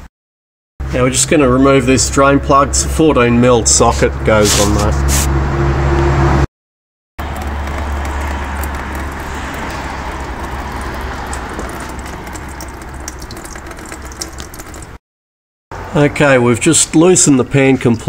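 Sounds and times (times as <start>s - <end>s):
fluid draining into container: 7.2s - 15.0s.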